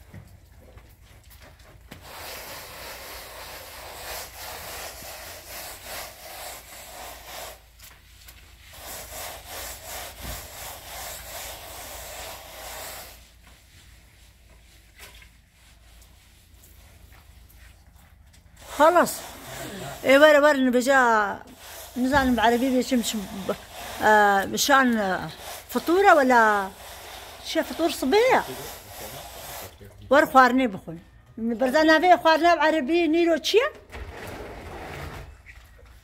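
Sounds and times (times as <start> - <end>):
float scraping cement: 2.0 - 7.8, 18.6 - 29.9, 33.9 - 35.9.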